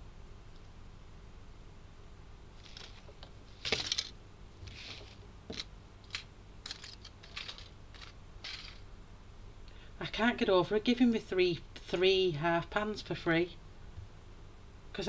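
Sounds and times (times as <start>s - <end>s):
short rustles: 2.6s - 5.2s.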